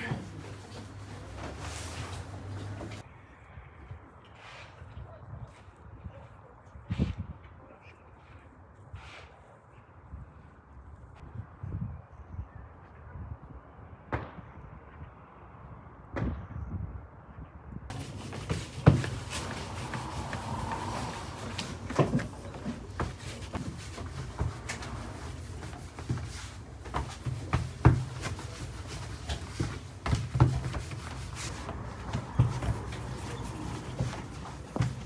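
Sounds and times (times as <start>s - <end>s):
rolling pin knocking and rubbing: 17.9s - 35.0s.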